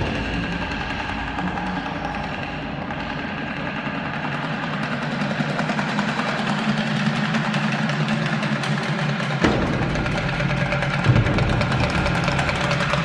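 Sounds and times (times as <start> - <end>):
deep rumble: 0.0 - 6.2, 9.4 - 13.0
drum roll: 0.0 - 13.0
low drone: 0.0 - 13.0.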